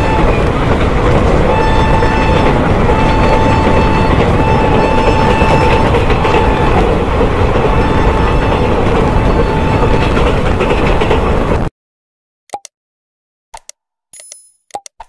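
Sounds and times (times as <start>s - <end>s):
train wheels rumbling on rails: 0.0s - 11.7s.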